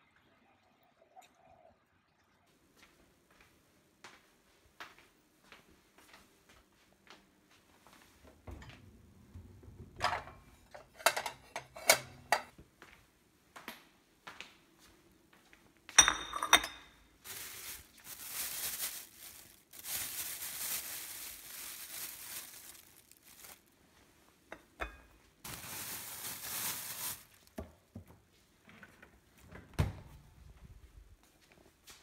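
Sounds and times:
ceramic plate clinking on countertop: 16.0 - 17.0
plastic bag crinkling: 17.2 - 23.8, 25.4 - 27.6.

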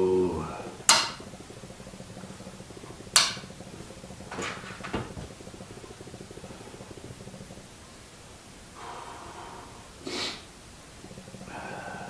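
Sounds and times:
soft knocks: 4.3 - 5.4.

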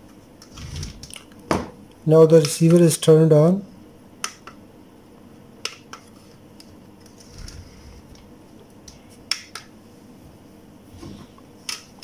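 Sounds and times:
soft low rumble: 7.3 - 8.3.

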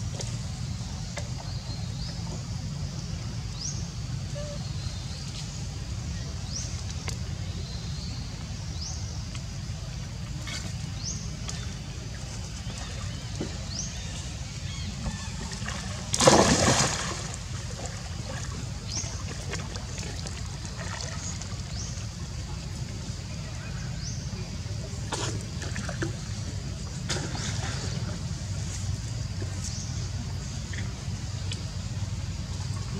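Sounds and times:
steady low rumble: 0.0 - 32.9
water sloshing: 10.1 - 22.9, 25.0 - 32.9
loud water splash: 15.7 - 17.6.

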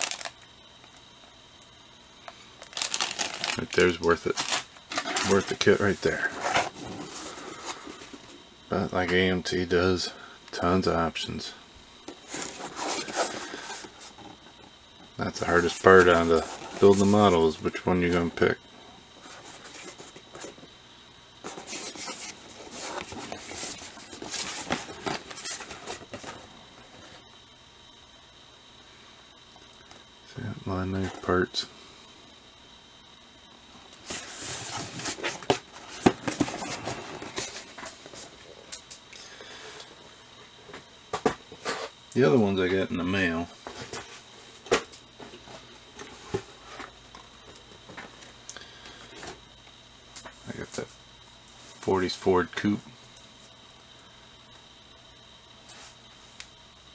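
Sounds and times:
cardboard box and paper rustling: 2.7 - 8.1.

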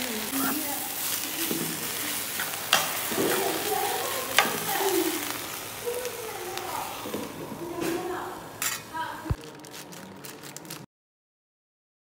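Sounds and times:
greens sizzling in a pan: 0.0 - 10.8
metal spoon stirring: 1.5 - 5.0.

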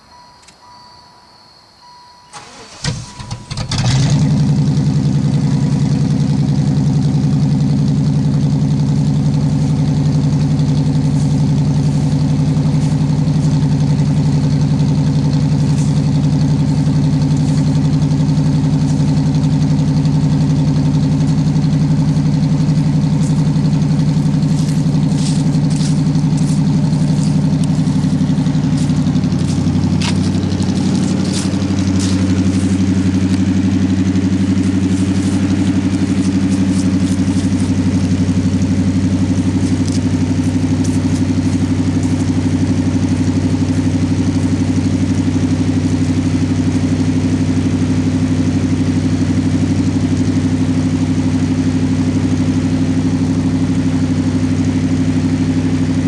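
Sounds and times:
car engine idling: 0.0 - 56.0
starter motor cranking: 2.3 - 4.3.

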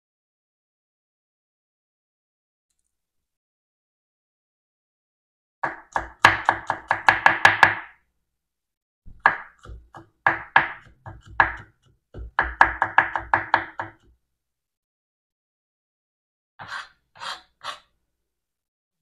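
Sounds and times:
knife chopping on wooden board: 5.6 - 8.0, 9.1 - 14.2.

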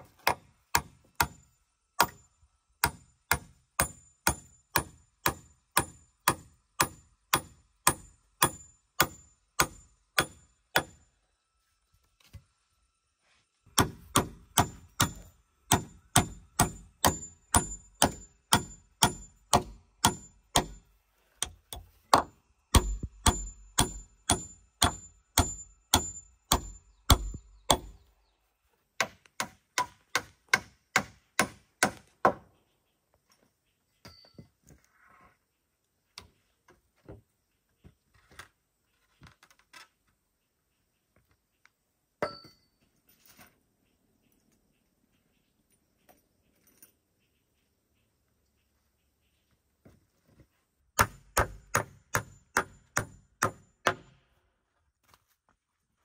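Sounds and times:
claw hammer driving nails into timber: 0.1 - 1.4, 2.8 - 11.0, 13.7 - 20.8, 21.4 - 28.0, 29.0 - 32.4, 51.0 - 54.2.

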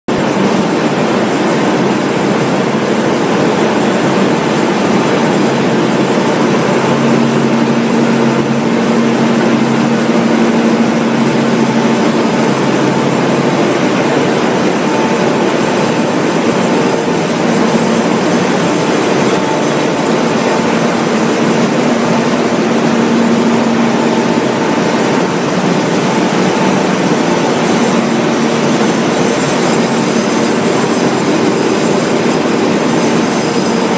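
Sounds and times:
low machine hum: 0.1 - 33.9
machinery din: 0.1 - 33.9.

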